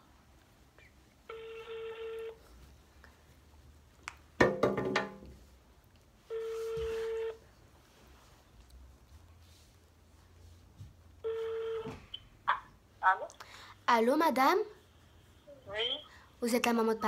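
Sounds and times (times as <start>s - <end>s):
telephone ringback tone: 1.3s - 2.4s, 6.3s - 7.4s, 11.2s - 12.0s.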